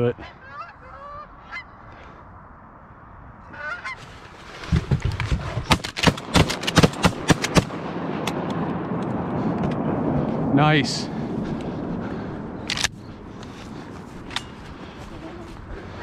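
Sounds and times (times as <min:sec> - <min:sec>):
geese honking: 0:00.2 - 0:01.8, 0:03.4 - 0:04.1
shotgun blasts: 0:05.6 - 0:08.4.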